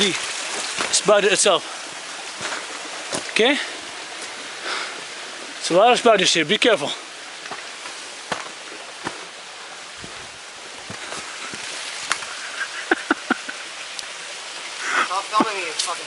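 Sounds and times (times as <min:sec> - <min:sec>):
steady hiss: 0:00.0 - 0:16.0
footsteps through undergrowth: 0:02.3 - 0:03.4, 0:07.4 - 0:12.4.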